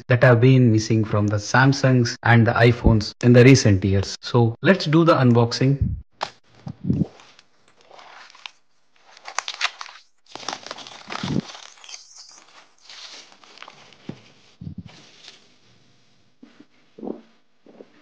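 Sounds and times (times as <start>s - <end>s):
plastic wrapping crinkling and tearing: 7.2s - 15.5s.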